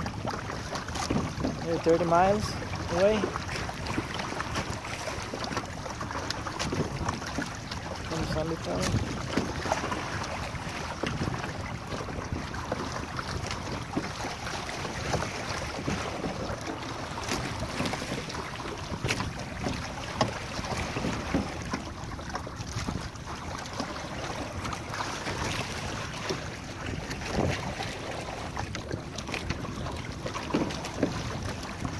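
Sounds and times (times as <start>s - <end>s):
water slapping against hull: 0.0s - 31.9s
wind buffeting microphone: 6.4s - 31.9s.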